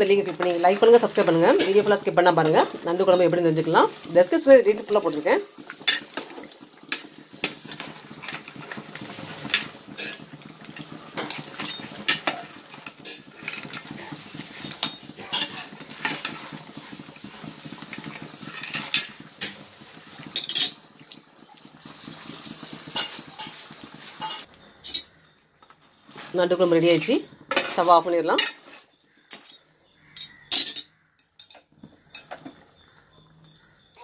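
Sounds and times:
metal ladle scraping pot: 0:00.0 - 0:19.6, 0:20.2 - 0:20.8, 0:22.4 - 0:25.2.

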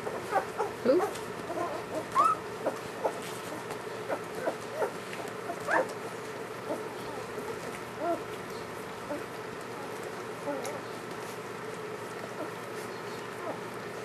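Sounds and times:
puppies squeaking and whimpering: 0:00.0 - 0:08.4, 0:10.4 - 0:10.9, 0:12.3 - 0:13.6.

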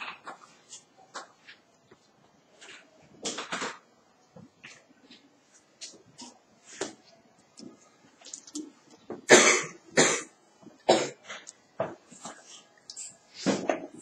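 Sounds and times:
person coughing: 0:09.3 - 0:10.3, 0:10.9 - 0:11.4.

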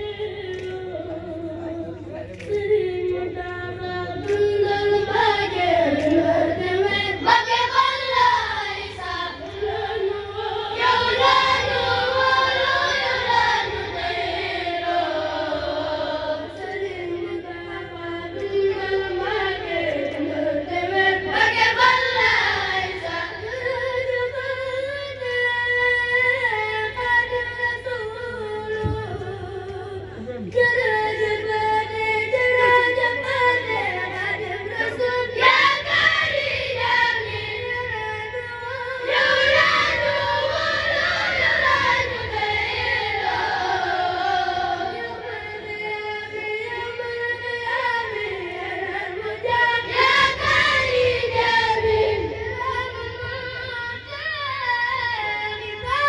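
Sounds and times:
steady low hum: 0:00.0 - 0:56.0
boys chanting together: 0:39.0 - 0:45.8, 0:48.8 - 0:53.1.

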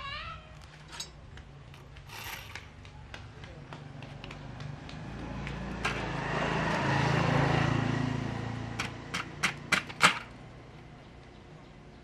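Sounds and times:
vehicle engine passing: 0:02.2 - 0:11.1.

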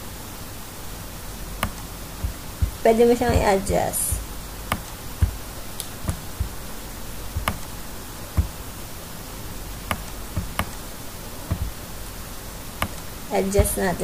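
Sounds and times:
microphone hiss: 0:00.0 - 0:14.0
computer mouse clicks: 0:01.6 - 0:02.8, 0:04.7 - 0:06.6, 0:07.4 - 0:07.7, 0:09.9 - 0:10.8, 0:11.5 - 0:11.7, 0:12.8 - 0:13.1.

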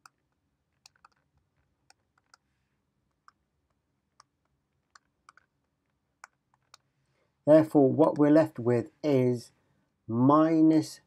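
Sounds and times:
stylus tapping on pen tablet: 0:00.8 - 0:02.4, 0:03.1 - 0:06.9.

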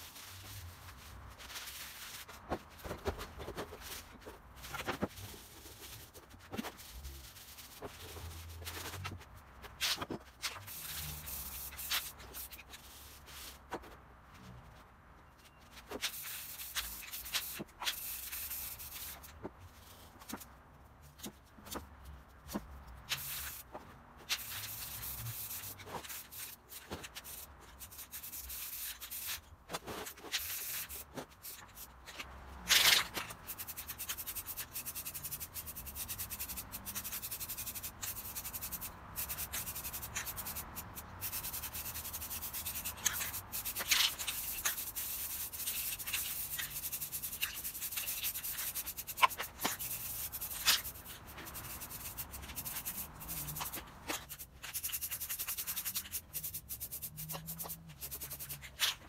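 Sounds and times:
spray paint can hissing: 0:09.8 - 0:13.6, 0:15.9 - 0:19.3, 0:23.1 - 0:23.6, 0:24.3 - 0:29.4, 0:30.1 - 0:31.9, 0:32.7 - 0:59.0.

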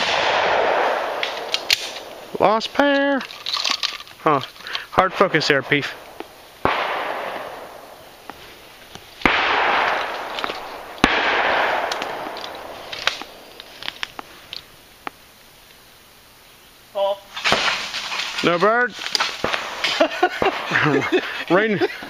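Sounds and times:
shotgun shots: 0:00.0 - 0:02.3, 0:05.0 - 0:08.0, 0:09.2 - 0:13.5, 0:17.4 - 0:18.5, 0:19.2 - 0:21.0
rolling echo: 0:05.0 - 0:08.3, 0:09.2 - 0:14.2.

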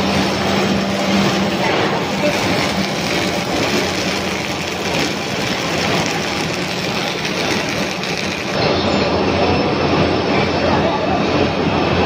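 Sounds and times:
foundry machinery running: 0:00.0 - 0:12.0.

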